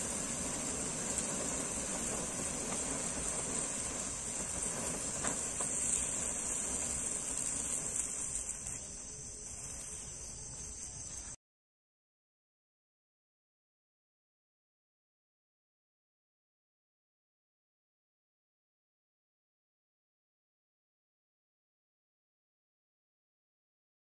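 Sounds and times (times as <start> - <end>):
faint fireworks pops: 0.0 - 10.0
crickets chirring: 0.0 - 11.4
fireworks hissing: 0.0 - 11.4.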